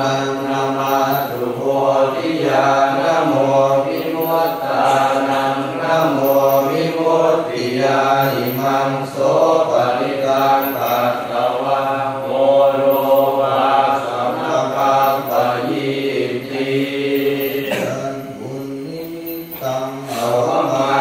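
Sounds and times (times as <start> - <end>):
voices chanting in unison: 0.0 - 21.0.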